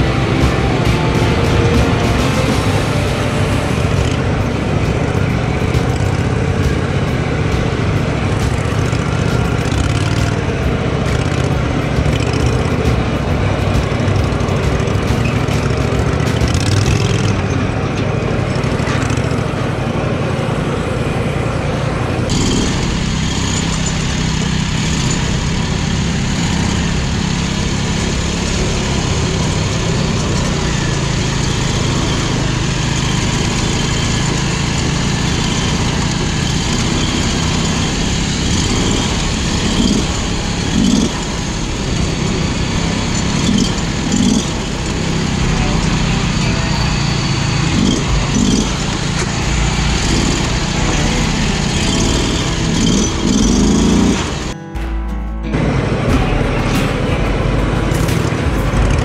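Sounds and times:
small lawn mower engines running: 0:00.0 - 0:54.6.

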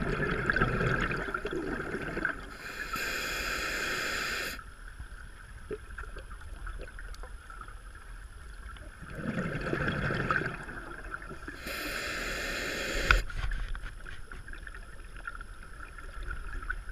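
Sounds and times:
underwater bubbling: 0:00.0 - 0:04.7, 0:05.4 - 0:13.3
hissing regulator breath: 0:02.5 - 0:04.6, 0:11.6 - 0:13.3.

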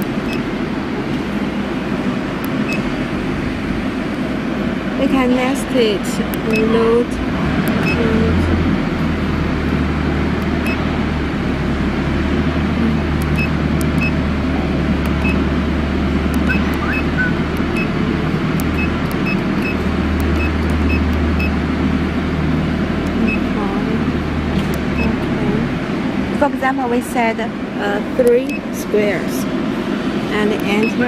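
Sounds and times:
loud machinery drone: 0:00.0 - 0:31.0
short high keypad beeps: 0:07.8 - 0:08.0, 0:15.1 - 0:15.4, 0:16.4 - 0:17.9.

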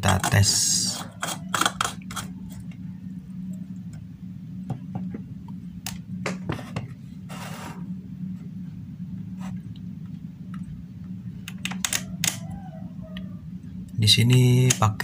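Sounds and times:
steady low hum: 0:00.0 - 0:15.0
meter scraping on wooden table: 0:06.4 - 0:07.9.

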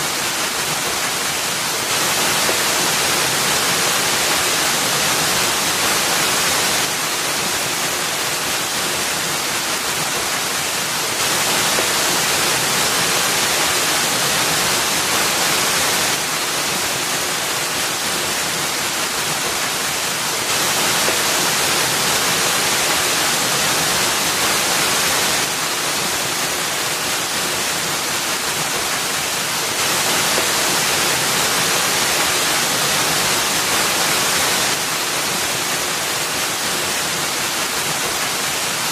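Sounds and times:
waterfall splashing into pool: 0:00.0 - 0:38.9.

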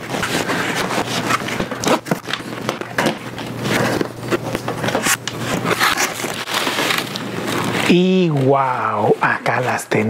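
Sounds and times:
cardboard box scraping and crinkling: 0:00.0 - 0:02.8, 0:03.5 - 0:08.4.

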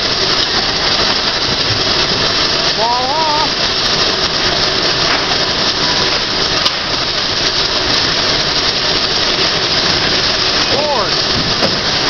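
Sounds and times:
boards on chain conveyor: 0:00.0 - 0:12.0
sawmill machinery running: 0:00.0 - 0:12.0.

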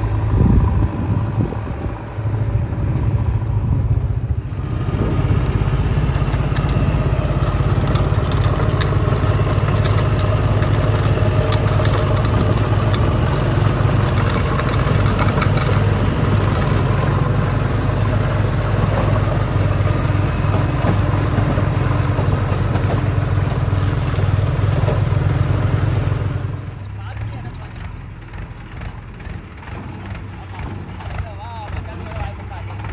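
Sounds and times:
diesel engine running: 0:00.0 - 0:32.9
light clicks and rattles: 0:06.1 - 0:06.8, 0:07.6 - 0:13.1, 0:14.0 - 0:16.0, 0:26.7 - 0:32.9.

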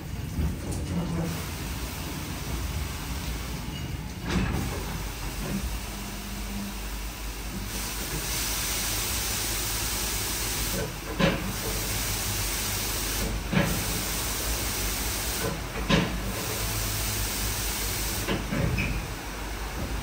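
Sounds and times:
car wash spraying liquid: 0:07.3 - 0:18.4.

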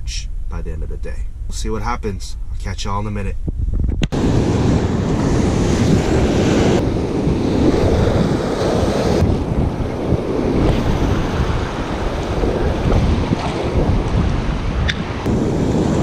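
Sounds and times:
wind buffeting microphone: 0:00.0 - 0:16.0
ocean surf breaking: 0:04.1 - 0:16.0.

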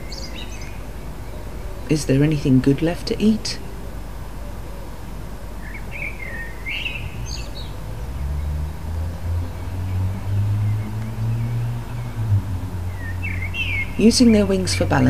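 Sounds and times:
vehicle engine rumble: 0:03.6 - 0:15.0
small bird chirping: 0:09.3 - 0:15.0.

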